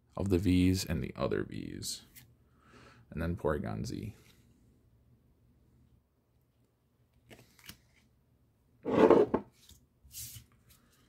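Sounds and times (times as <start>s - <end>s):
cards rustling: 7.2s - 8.1s.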